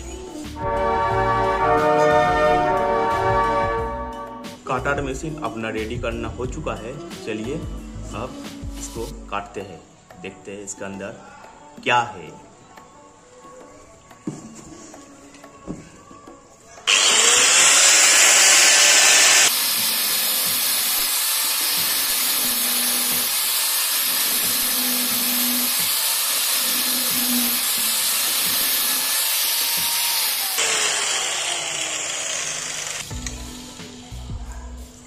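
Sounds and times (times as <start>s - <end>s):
angle grinder cutting metal: 16.9s - 33.3s.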